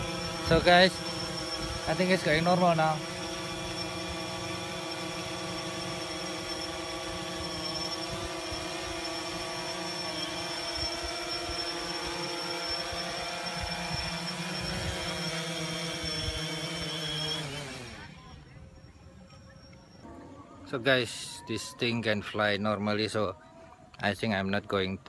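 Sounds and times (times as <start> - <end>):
drone propellers whirring: 0.0 - 21.2.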